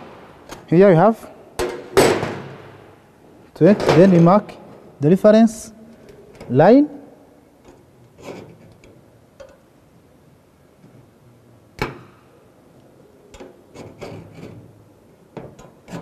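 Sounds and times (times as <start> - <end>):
scriber scratching sheet steel: 13.7 - 14.6.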